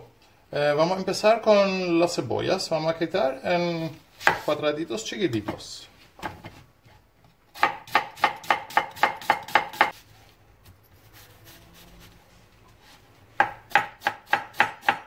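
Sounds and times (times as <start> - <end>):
knife chopping on cutting board: 4.2 - 4.5, 7.5 - 10.0, 13.4 - 15.0.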